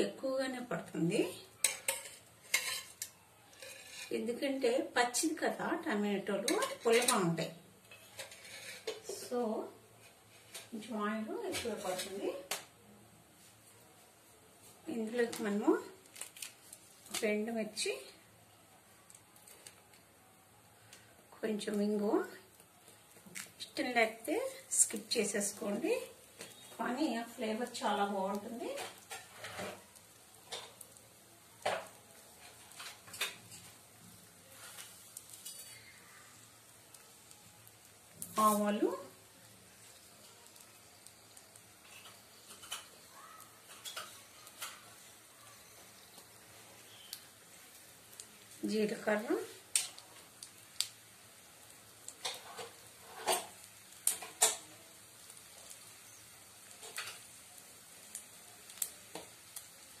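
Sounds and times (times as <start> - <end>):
oil sizzling: 0.0 - 60.0
kitchen utensils clinking: 1.6 - 4.2, 6.4 - 9.2, 43.6 - 44.9.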